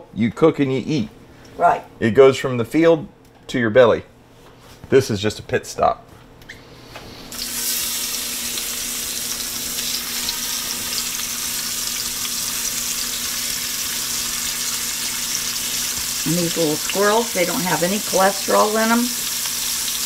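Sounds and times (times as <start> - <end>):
meat sizzling in hot oil: 7.3 - 20.0.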